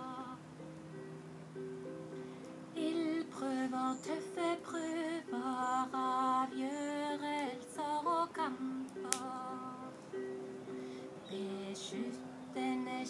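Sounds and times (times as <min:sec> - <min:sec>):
woman singing: 0:00.0 - 0:00.4, 0:02.7 - 0:10.0, 0:11.2 - 0:13.0
strummed ukulele: 0:00.0 - 0:13.0.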